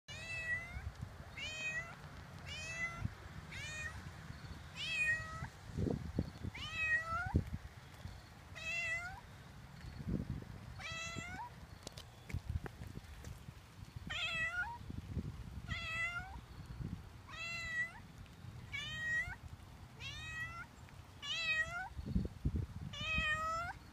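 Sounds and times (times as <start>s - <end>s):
cat meowing: 0.1s - 0.8s, 4.8s - 5.5s, 6.6s - 7.4s, 8.6s - 9.2s, 10.8s - 11.5s, 14.1s - 14.8s, 15.7s - 16.4s, 17.3s - 18.0s, 18.7s - 19.4s, 20.0s - 22.0s, 22.9s - 23.8s.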